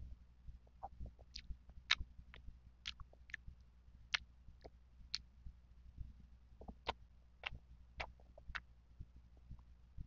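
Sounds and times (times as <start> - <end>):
low steady hum: 0.0 - 10.0
wet chewing clicks: 0.9 - 3.5, 6.6 - 8.7.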